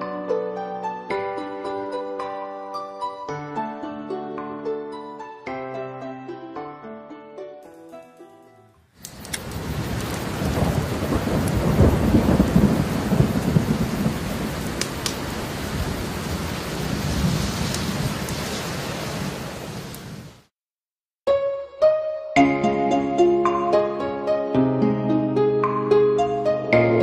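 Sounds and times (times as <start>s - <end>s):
piano music: 0.0s - 8.9s, 21.3s - 27.0s
rain hissing: 8.9s - 20.5s
thunder rumbling: 9.1s - 20.4s.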